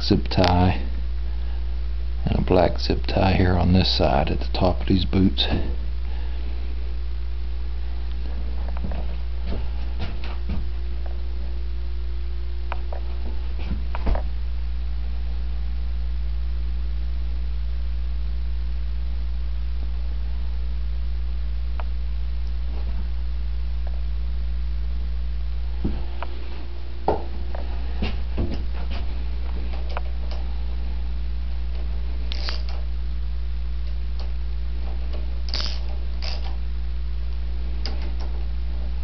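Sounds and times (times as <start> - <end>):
low electrical hum: 0.0 - 39.0.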